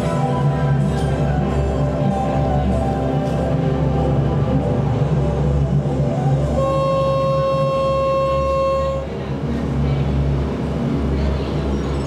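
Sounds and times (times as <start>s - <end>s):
boat engine drone: 0.0s - 12.0s
boat horn blast: 6.1s - 9.2s.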